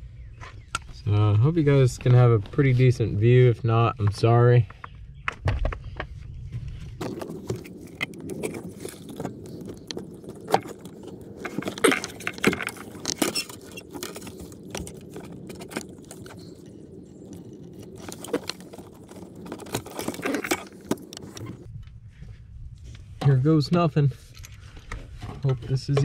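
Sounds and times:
hand tools clinking and rattling: 0:07.0 - 0:21.7.

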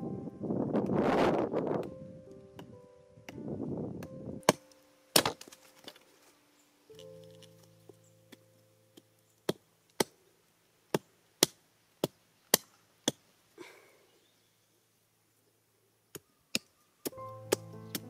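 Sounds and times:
hatchet chopping wooden stick: 0:04.0 - 0:05.6, 0:09.4 - 0:10.2, 0:10.9 - 0:13.2, 0:16.1 - 0:18.0.

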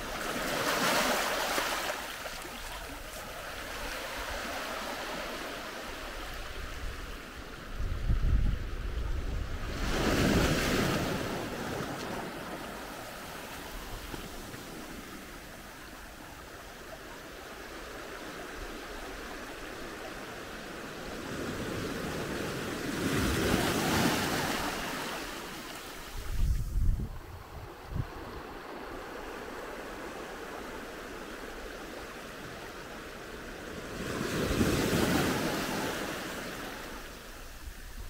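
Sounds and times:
wind buffeting microphone: 0:26.0 - 0:29.2.

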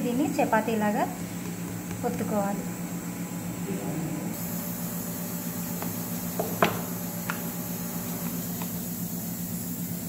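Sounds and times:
steady low hum: 0:00.0 - 0:10.0
rolling pin knocking on stone: 0:05.8 - 0:07.5.

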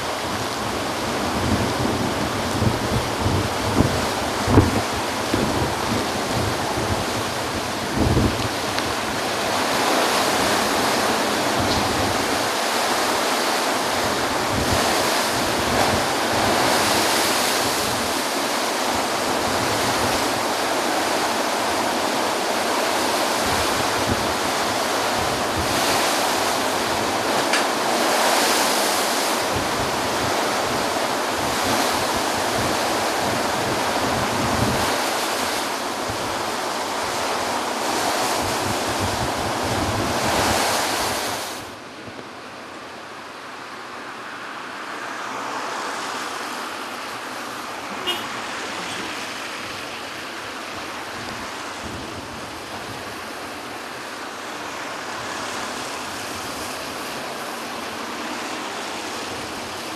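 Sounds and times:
wind buffeting microphone: 0:00.0 - 0:42.3, 0:48.7 - 0:54.0
storm surf waves breaking: 0:00.0 - 0:59.9.

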